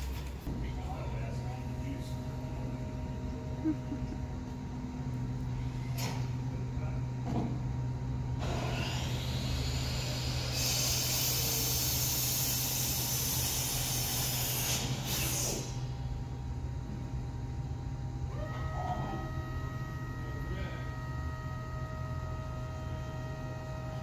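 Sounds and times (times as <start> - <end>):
turret whine and hiss: 8.4 - 16.0.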